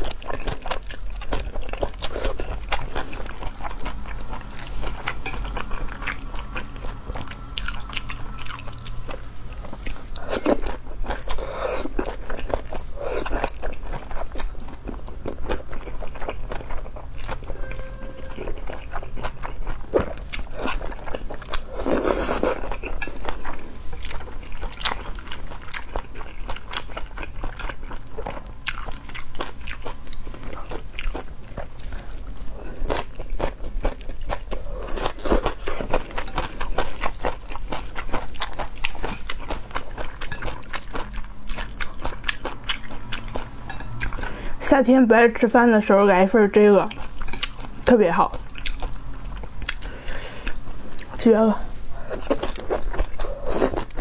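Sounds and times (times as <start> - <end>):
wet chewing: 0.0 - 44.6, 45.9 - 54.0.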